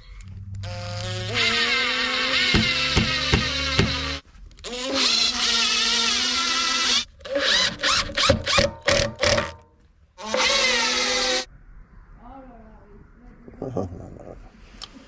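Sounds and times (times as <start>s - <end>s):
impact driver driving screws: 0.6s - 9.6s, 10.2s - 11.4s.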